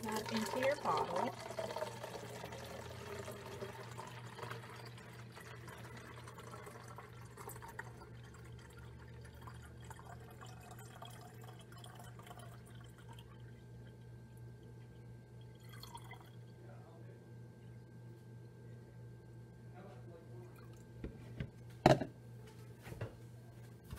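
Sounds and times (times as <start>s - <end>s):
water trickling into plastic bottle: 0.0s - 13.6s.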